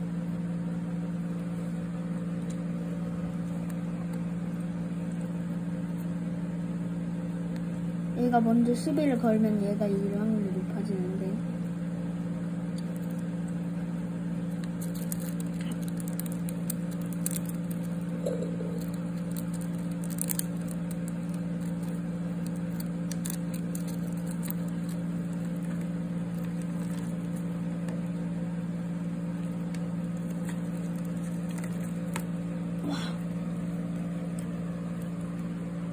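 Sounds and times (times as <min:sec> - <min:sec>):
low machine hum: 0:00.0 - 0:35.9
beetle legs scratching on bark: 0:18.7 - 0:27.4.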